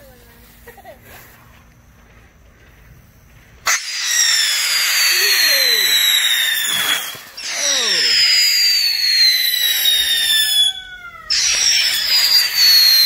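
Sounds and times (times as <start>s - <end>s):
firework hissing and whistling: 3.6s - 13.0s.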